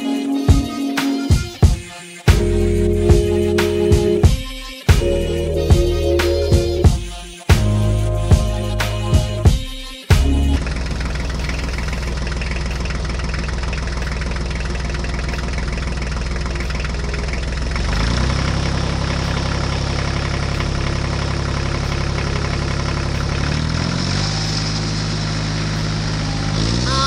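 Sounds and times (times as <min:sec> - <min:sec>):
diesel tractor engine running: 0:10.2 - 0:27.0.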